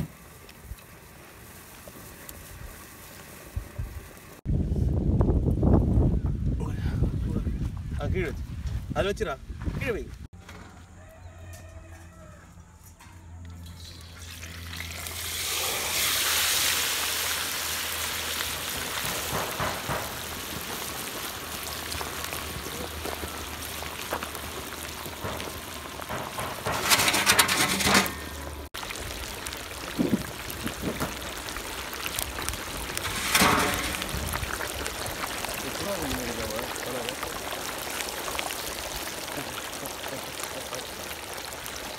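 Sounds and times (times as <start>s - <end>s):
oil sizzling and bubbling: 0.0s - 4.5s, 13.6s - 41.9s.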